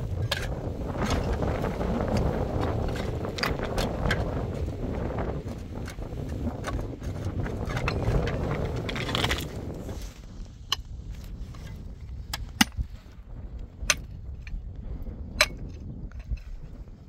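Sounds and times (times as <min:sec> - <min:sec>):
shovel scraping through gravel: 0:06.8 - 0:10.1
pickaxe striking stony soil: 0:12.3 - 0:12.8.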